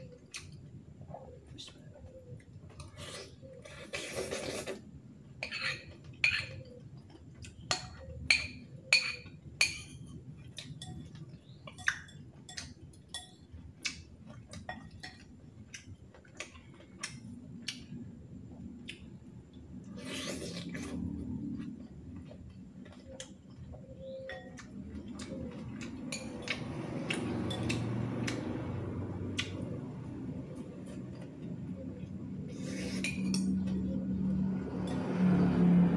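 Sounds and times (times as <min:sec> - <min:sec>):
fork clinking against ceramic bowl: 0:07.7 - 0:10.0, 0:10.6 - 0:13.5.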